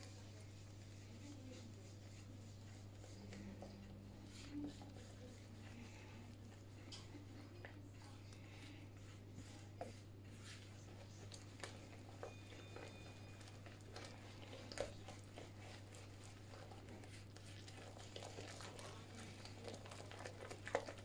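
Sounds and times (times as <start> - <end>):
steady low hum: 0.0 - 21.0
fork scraping glass bowl: 11.6 - 16.5.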